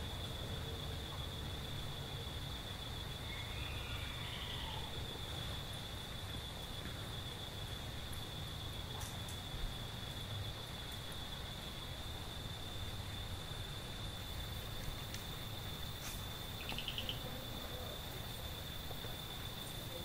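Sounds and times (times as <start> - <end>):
insect trilling: 3.0 - 5.8, 14.2 - 20.0
fast insect chirps: 7.1 - 20.0.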